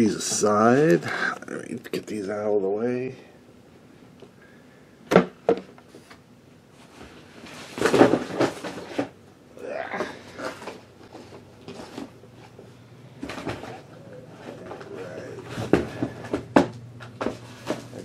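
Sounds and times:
packaging rustling and bumping: 6.8 - 9.2, 10.0 - 18.0.

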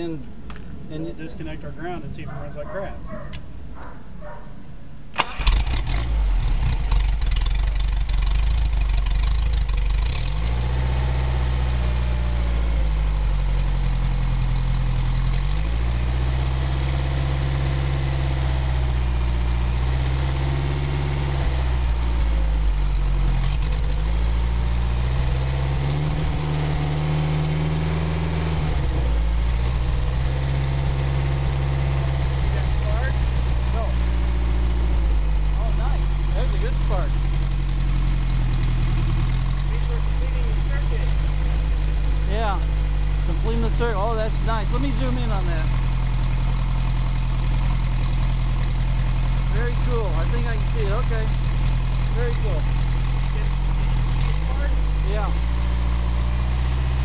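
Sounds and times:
car engine starting and revving: 5.1 - 57.0.

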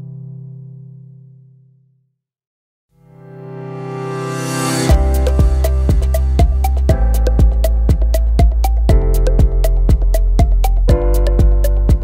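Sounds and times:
background music: 3.2 - 12.0.

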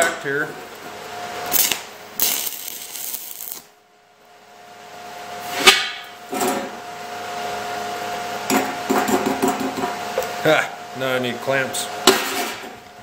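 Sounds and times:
steady hum: 0.0 - 8.9.

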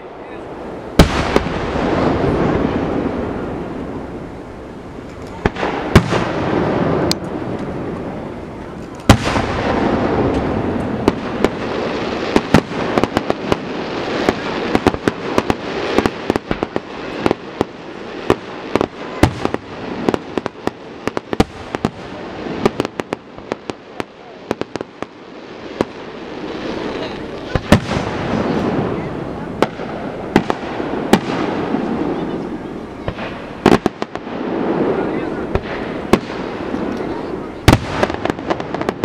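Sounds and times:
fireworks bangs and crackles: 0.0 - 39.0
rumble of echoing blasts: 0.0 - 39.0.

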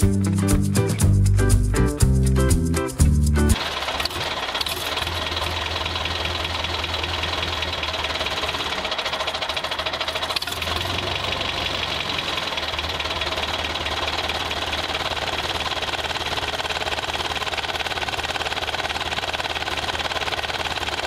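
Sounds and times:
tractor engine chugging: 0.0 - 21.0.

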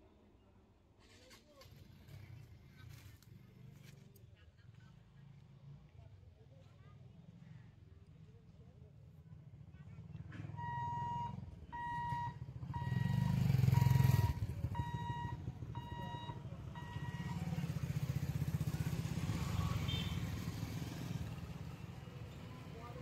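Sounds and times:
barrier warning beeps: 10.6 - 17.7
motorcycle engines running: 11.2 - 23.0.

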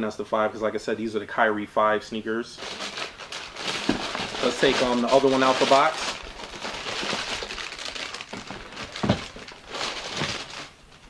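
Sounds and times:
tissue paper crinkling: 2.6 - 11.0.

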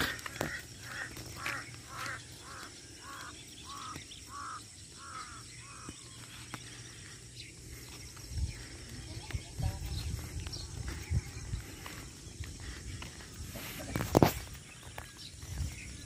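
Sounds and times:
crow cawing: 0.0 - 6.2.

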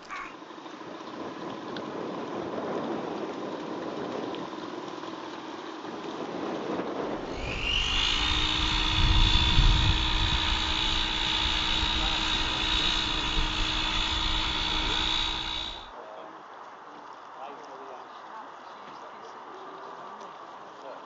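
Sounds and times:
faint steady motor whine: 0.0 - 16.0
model propeller motors whining: 7.1 - 15.9
low rumble: 7.2 - 15.9.

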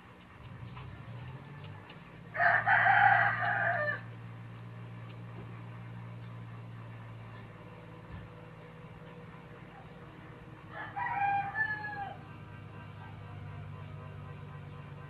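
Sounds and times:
steady low hum: 0.0 - 15.0
rooster crowing: 2.3 - 4.1, 10.6 - 13.9.

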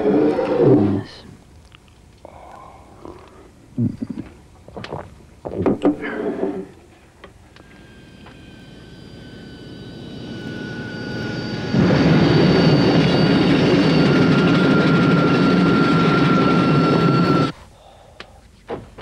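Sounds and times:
aircraft engine roar with whine: 7.2 - 17.6.

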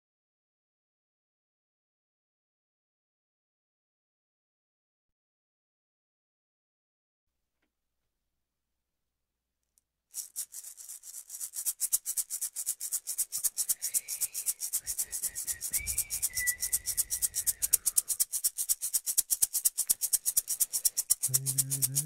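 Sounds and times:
rattle shaken rhythmically: 10.1 - 22.0
faint high whistle-like tone: 13.8 - 18.0.

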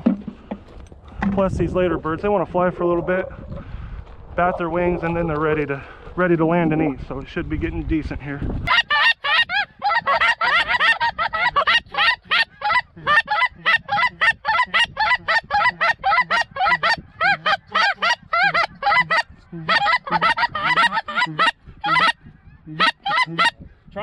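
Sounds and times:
goose call honks and clucks: 8.7 - 23.7.

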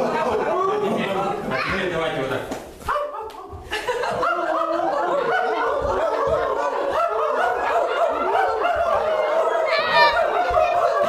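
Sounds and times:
people laughing: 0.0 - 2.2, 3.2 - 11.0
people making dog-like calls: 2.8 - 11.0.

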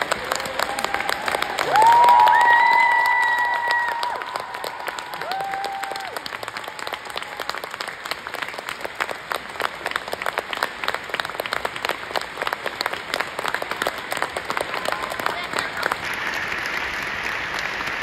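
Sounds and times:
audience applauding: 0.0 - 18.0.

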